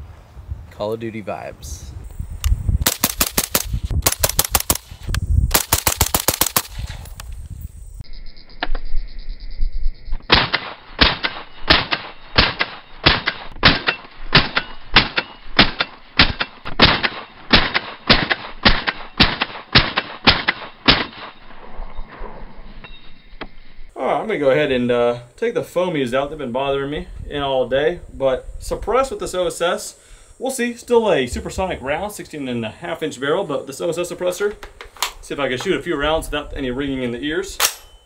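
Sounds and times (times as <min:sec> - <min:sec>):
suppressed rifle shots: 0:02.8 - 0:07.2, 0:10.3 - 0:21.4.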